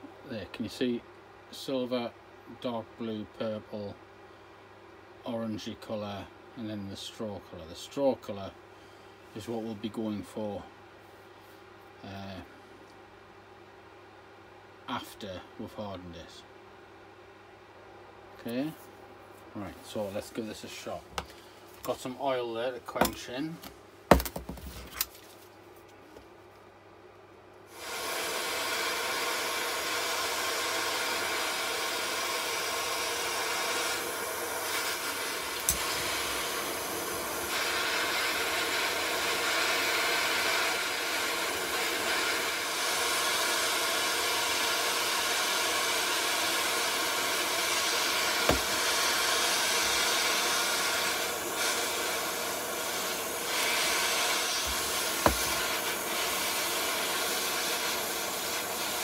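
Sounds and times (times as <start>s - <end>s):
blowtorches hissing: 27.7s - 59.0s.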